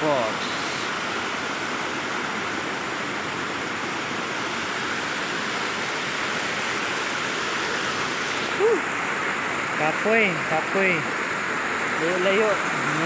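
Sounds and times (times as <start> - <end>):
stream rushing over boulders: 0.0 - 13.0.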